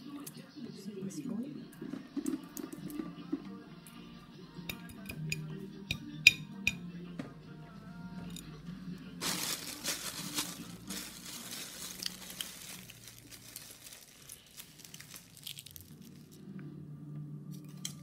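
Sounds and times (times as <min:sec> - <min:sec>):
eggshell crackling being peeled: 0:10.3 - 0:16.4.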